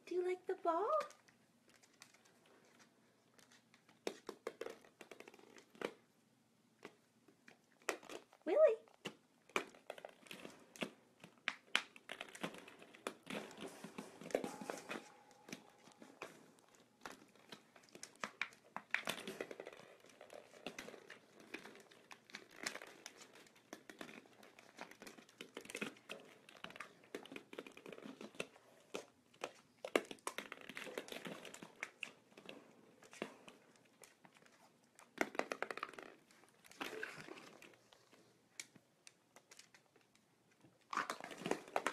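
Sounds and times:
plastic balls knocking on wooden floor: 3.9 - 6.0, 35.0 - 37.6.

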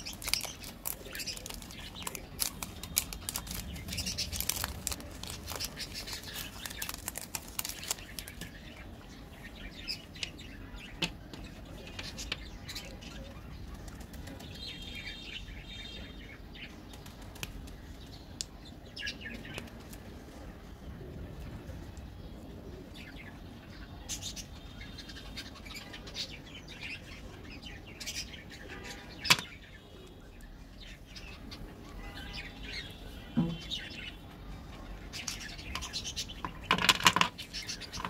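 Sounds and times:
chocolate breaking clicks: 0.0 - 8.5
plastic wrapper crinkling: 0.0 - 8.7.

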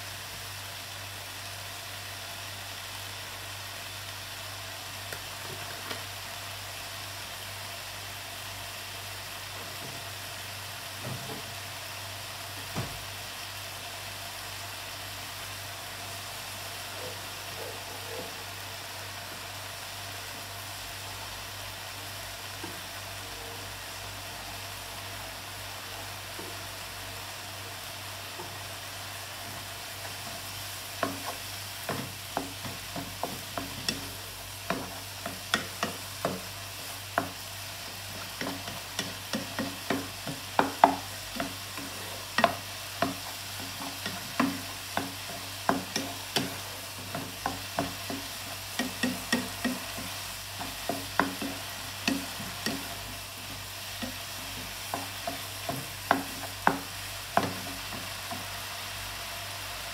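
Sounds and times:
food sizzling in frying pan: 0.0 - 59.9
wooden spatula knocking on pan: 31.0 - 37.4, 38.2 - 58.5.

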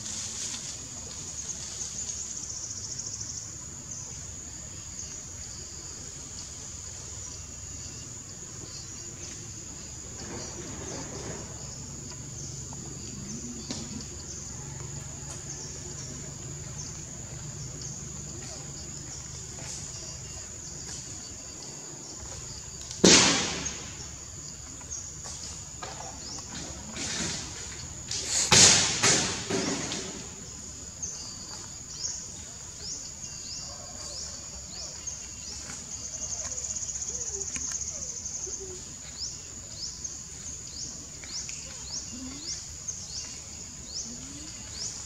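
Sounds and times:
insect chorus buzzing: 0.0 - 45.0
burst of rustling: 23.0 - 24.2, 27.0 - 30.5.

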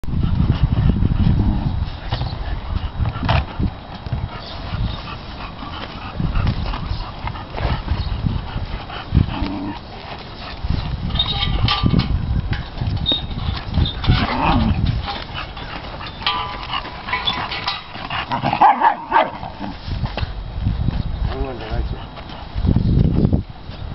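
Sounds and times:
low rumble: 5.6 - 21.0.

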